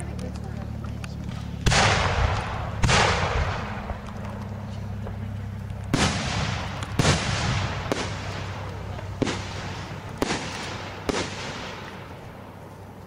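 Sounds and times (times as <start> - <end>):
firework bangs with rumble: 1.3 - 4.2, 5.9 - 12.2.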